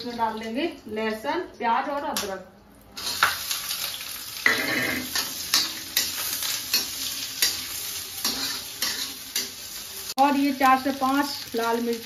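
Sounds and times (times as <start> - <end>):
onion frying in hot oil: 2.8 - 12.0
metal spatula scraping pan: 4.4 - 9.6.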